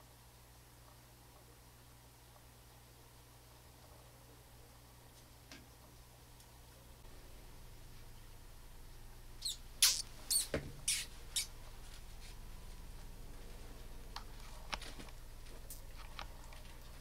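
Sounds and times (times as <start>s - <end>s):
mouse squeaking: 9.4s - 11.6s.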